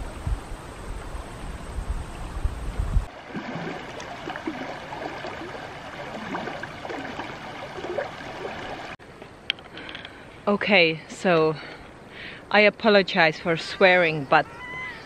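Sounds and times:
river running over gravel: 0:03.0 - 0:09.0.

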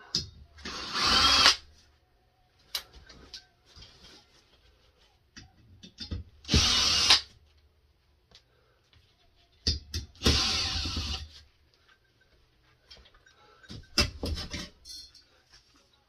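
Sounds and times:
cordless drill running: 0:00.7 - 0:01.6, 0:06.5 - 0:07.2.

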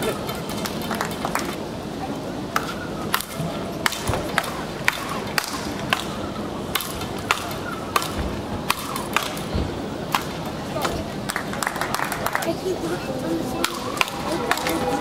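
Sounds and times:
rackets hitting a ball: 0:02.6 - 0:09.5, 0:10.1 - 0:11.0, 0:13.6 - 0:14.9.

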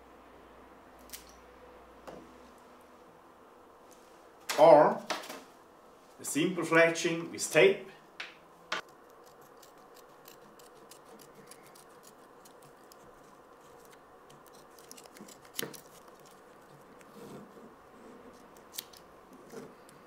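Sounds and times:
small scissors snipping tape: 0:08.8 - 0:16.8, 0:18.4 - 0:19.1.

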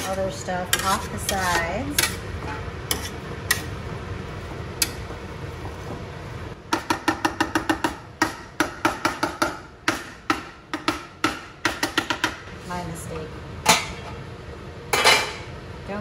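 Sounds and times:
whisk scraping metal pot: 0:00.0 - 0:03.8
whisk tapping metal pot: 0:00.0 - 0:03.8.

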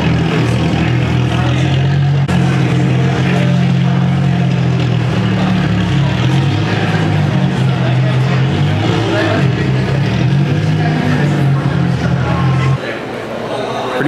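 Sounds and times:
car engines droning: 0:00.0 - 0:13.6.

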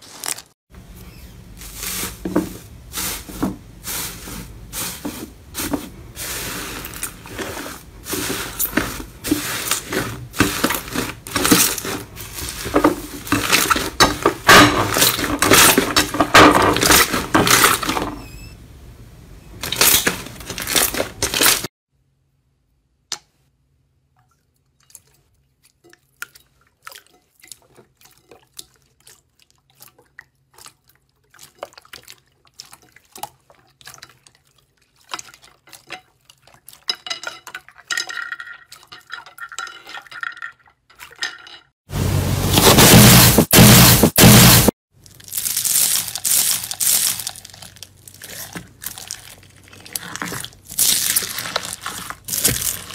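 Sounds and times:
slime crackling as it is kneaded: 0:45.0 - 0:52.9.

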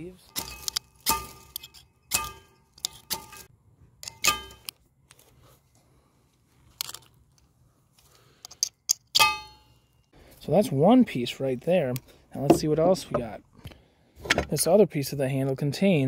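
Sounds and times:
knife scraping fire-starter rod: 0:00.3 - 0:04.8.

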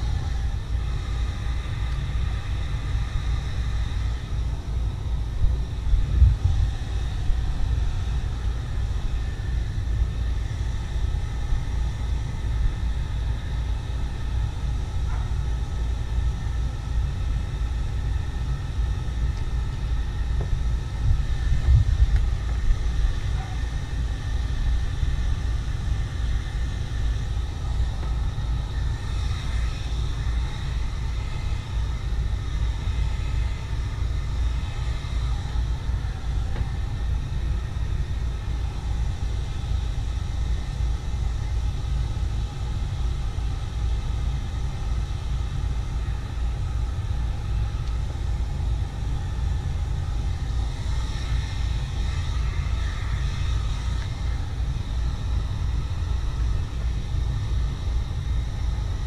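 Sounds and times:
wind buffeting microphone: 0:03.2 - 0:09.6, 0:19.5 - 0:24.3.

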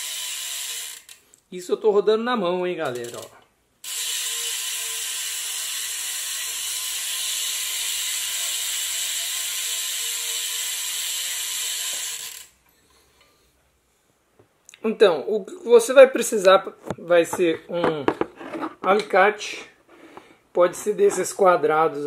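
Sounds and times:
bike hub ratcheting buzz: 0:00.0 - 0:01.3, 0:02.8 - 0:12.6.

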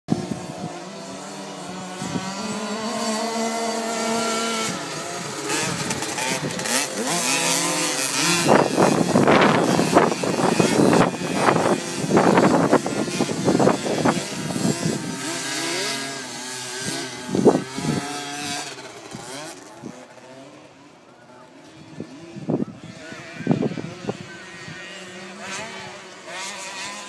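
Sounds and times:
loud gusts of noise: 0:00.1 - 0:20.2, 0:21.7 - 0:27.0
two-stroke engine revving: 0:00.1 - 0:20.8, 0:21.8 - 0:27.0.

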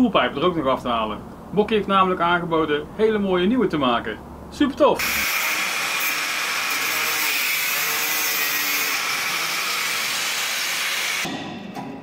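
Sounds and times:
power grinder on steel: 0:05.0 - 0:11.3.

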